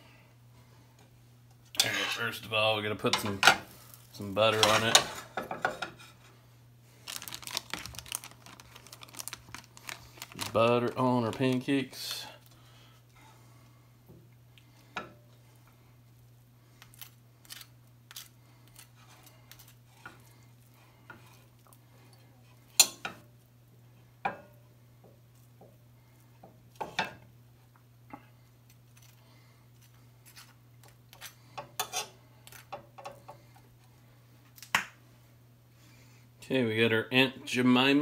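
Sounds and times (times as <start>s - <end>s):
low steady hum: 0.0s - 38.0s
knife scraping china plate: 1.8s - 2.2s, 31.1s - 32.2s.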